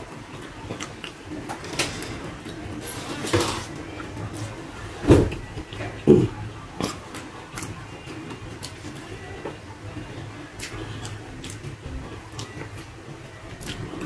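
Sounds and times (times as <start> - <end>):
chewing and mouth smacking: 0.7 - 1.2, 10.6 - 11.7.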